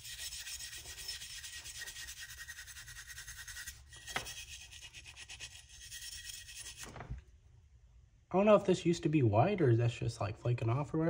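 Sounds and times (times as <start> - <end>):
scrubbing by hand: 0.0 - 6.9.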